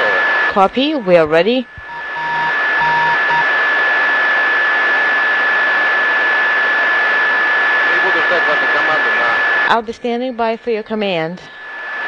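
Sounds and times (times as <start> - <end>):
radio static hissing: 0.0 - 12.0
high whistle tone: 1.8 - 3.5.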